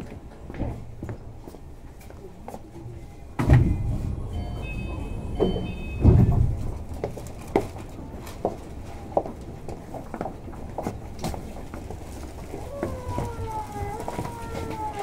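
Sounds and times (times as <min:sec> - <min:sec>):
train interior low rumble: 0:00.0 - 0:15.0
brief high tones: 0:03.7 - 0:06.6
heavy thumps: 0:05.2 - 0:07.7.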